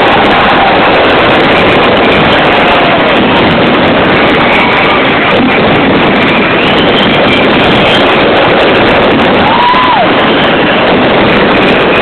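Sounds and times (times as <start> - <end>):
fireworks exploding and crackling: 0.0 - 12.0
whistle-like tone: 6.5 - 8.2.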